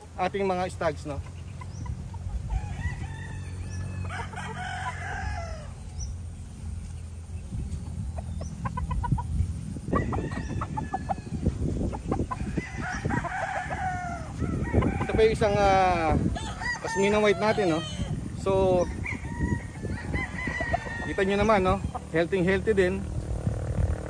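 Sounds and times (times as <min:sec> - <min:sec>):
rooster crowing: 0:02.4 - 0:05.9, 0:09.9 - 0:11.5, 0:12.4 - 0:18.1, 0:18.9 - 0:21.9
chicken clucking: 0:07.6 - 0:15.2.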